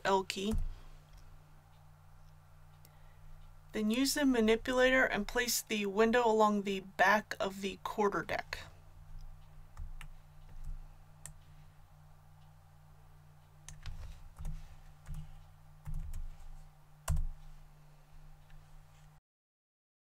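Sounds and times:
steady low hum: 0.0s - 19.2s
keyboard and mouse clicks: 13.6s - 17.5s.

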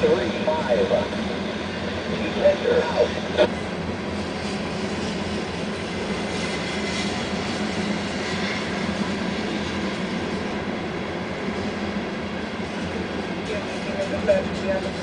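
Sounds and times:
freight train wheels on rails: 3.6s - 15.0s.

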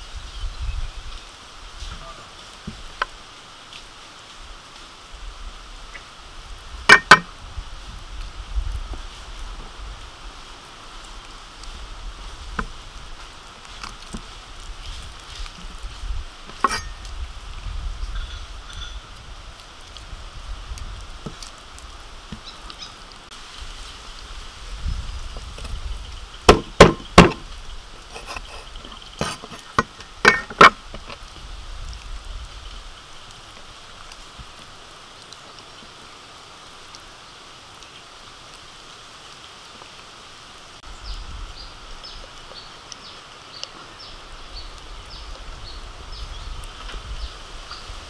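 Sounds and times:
cleaver chopping on wooden board: 6.9s - 7.3s, 26.5s - 27.4s.

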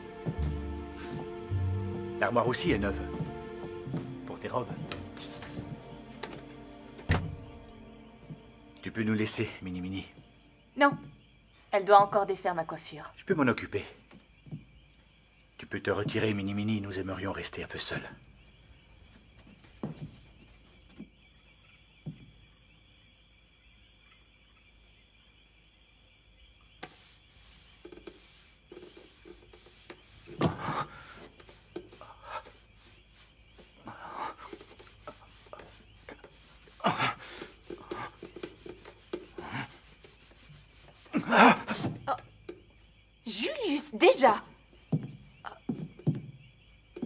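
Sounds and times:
soft rustling: 0.0s - 10.5s
crickets chirping: 0.0s - 47.0s
higher insect chirp: 0.0s - 47.0s.

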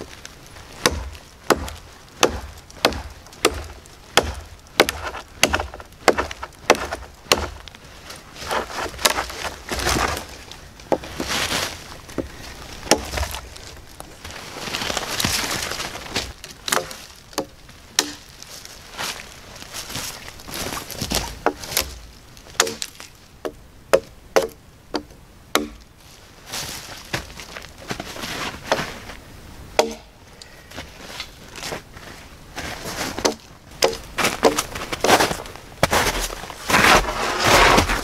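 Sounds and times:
knife chopping into log: 22.6s - 22.9s.

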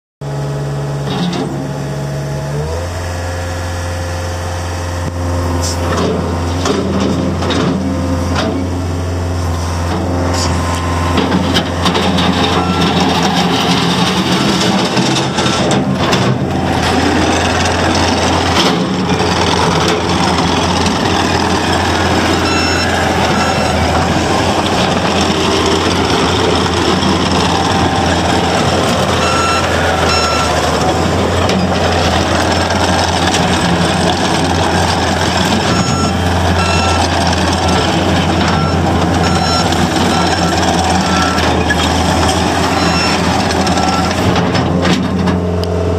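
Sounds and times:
diesel engine running: 0.2s - 45.9s
backup alarm beeping: 12.4s - 13.1s, 20.9s - 31.0s, 35.6s - 41.6s, 42.6s - 44.2s.

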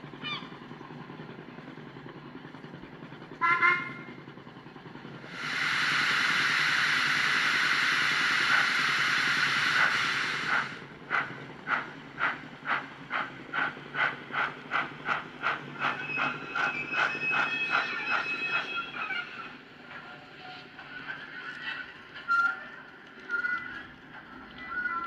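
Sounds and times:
steam locomotive exhaust chuffs: 0.0s - 22.2s
steam hiss: 5.2s - 18.7s.

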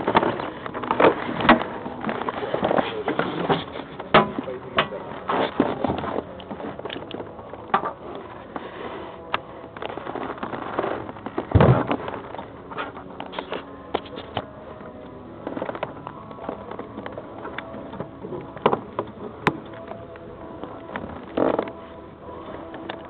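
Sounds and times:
heavy thump: 11.5s - 12.1s.

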